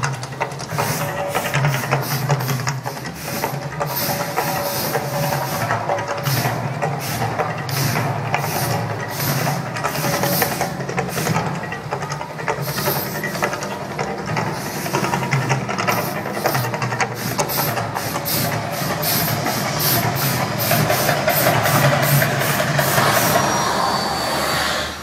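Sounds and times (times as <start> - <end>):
gas flame whooshes: 15.8 - 25.0.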